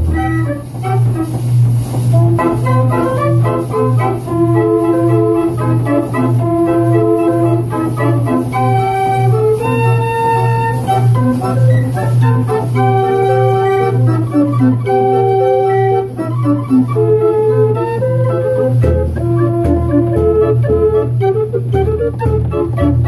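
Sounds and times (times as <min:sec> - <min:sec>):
band organ playing: 0:00.0 - 0:23.0.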